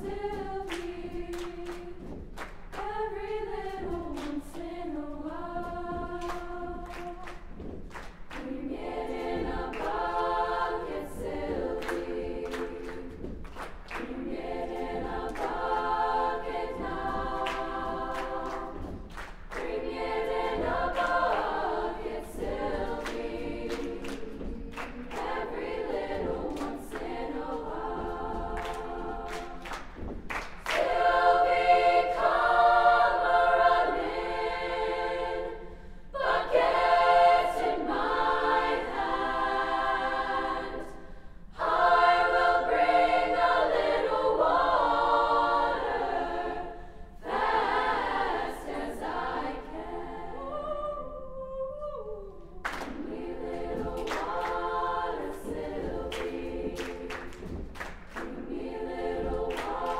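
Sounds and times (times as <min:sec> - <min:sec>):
hand claps: 0:00.0 - 0:33.0, 0:52.6 - 0:59.9
women's choir singing: 0:00.0 - 0:59.9.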